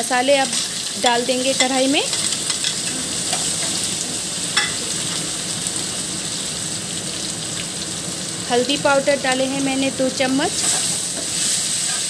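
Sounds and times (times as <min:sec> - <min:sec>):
paste sizzling in hot oil: 0:00.0 - 0:12.0
spatula stirring in wok: 0:10.5 - 0:12.0.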